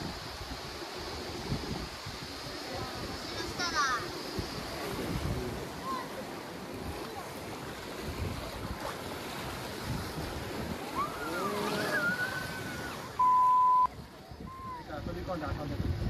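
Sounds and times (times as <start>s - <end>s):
river water rushing through rapids: 0.0s - 15.4s
excited voices calling out: 10.8s - 13.2s
censor bleep: 13.2s - 13.9s.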